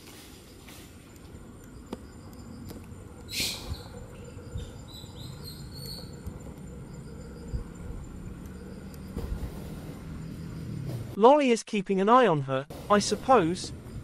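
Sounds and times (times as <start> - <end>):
insects droning: 0.0 - 11.2, 12.7 - 14.0
birds chirping: 0.4 - 11.2.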